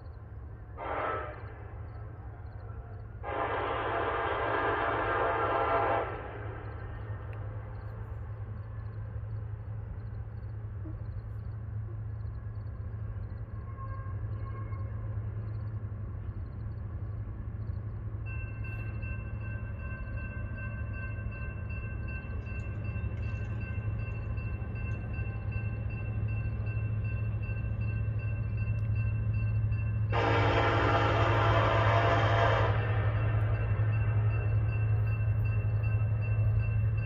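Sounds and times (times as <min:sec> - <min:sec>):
locomotive air horn: 0:00.7 - 0:01.8, 0:03.2 - 0:06.6, 0:30.1 - 0:33.5
crossing warning bell: 0:06.6 - 0:37.0.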